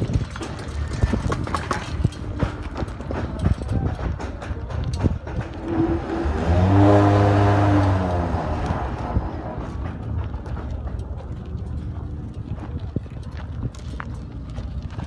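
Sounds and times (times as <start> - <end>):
vehicle engine passing: 5.4 - 10.7.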